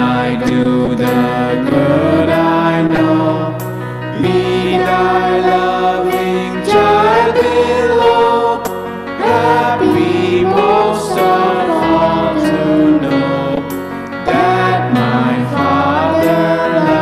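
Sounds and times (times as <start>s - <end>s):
hymn sung in long notes: 4.2s - 13.6s, 14.2s - 17.0s.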